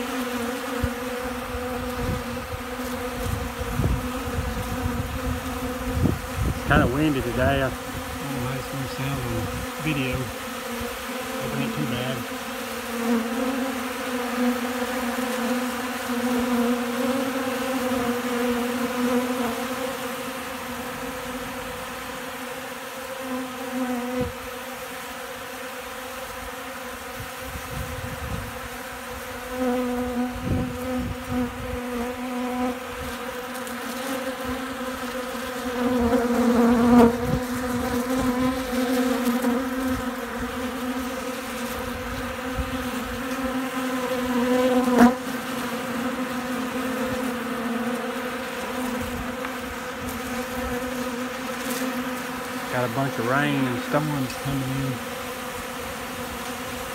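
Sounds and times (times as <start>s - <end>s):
bees buzzing: 0.0s - 56.9s
wind buffeting microphone: 1.7s - 8.2s, 9.2s - 9.8s, 27.3s - 28.7s, 30.3s - 31.8s.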